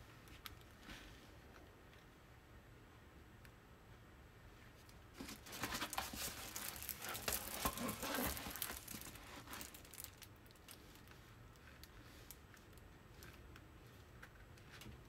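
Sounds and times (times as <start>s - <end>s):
plastic sheet crinkling: 5.2s - 11.2s.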